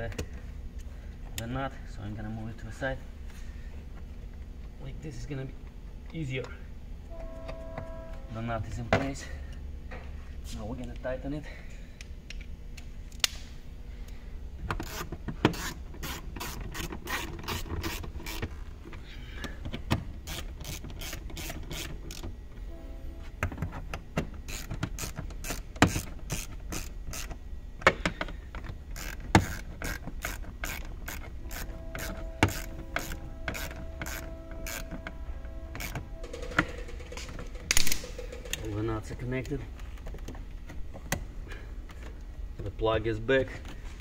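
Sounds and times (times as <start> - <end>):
ratchet wrench clicking: 20.2 - 22.3, 24.4 - 27.4, 28.9 - 35.0, 35.8 - 38.7.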